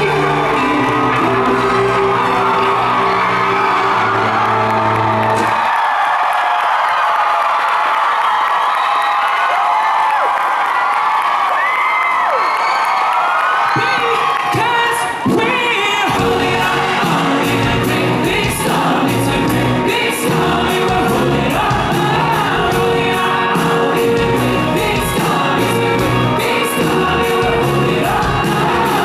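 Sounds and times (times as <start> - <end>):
drums beating: 15.2 - 29.0
people singing: 15.3 - 29.0.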